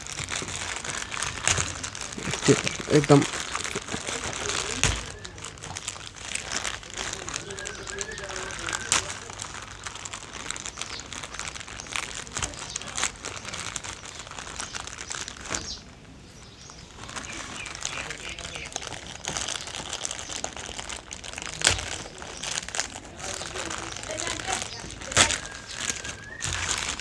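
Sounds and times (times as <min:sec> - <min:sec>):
packing tape peeling: 0:00.0 - 0:15.8
plastic bag crinkling: 0:00.0 - 0:27.0.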